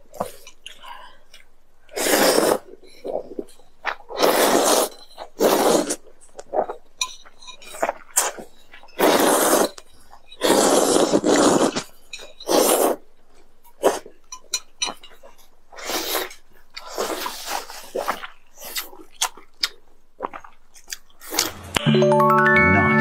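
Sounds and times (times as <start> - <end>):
slurping noodles: 1.9 - 6.8, 7.6 - 9.8, 10.4 - 13.0, 13.8 - 14.1, 15.7 - 19.3.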